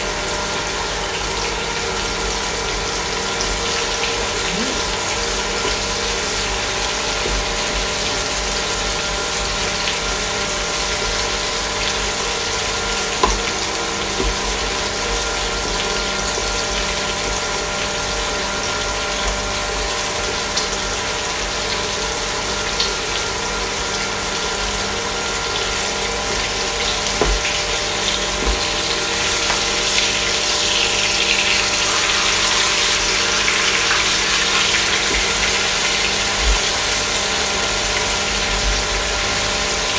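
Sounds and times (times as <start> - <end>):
induction cooktop hum: 0.0 - 39.9
fish sizzling in a frying pan: 5.6 - 39.9
spatula taps: 27.2 - 27.6.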